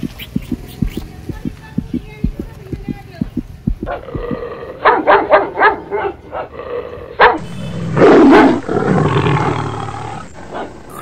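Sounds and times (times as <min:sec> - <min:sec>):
tiger roaring and growling: 0:03.8 - 0:05.1, 0:06.4 - 0:11.0
puppy barking: 0:03.9 - 0:04.2, 0:04.8 - 0:06.5, 0:07.2 - 0:07.5.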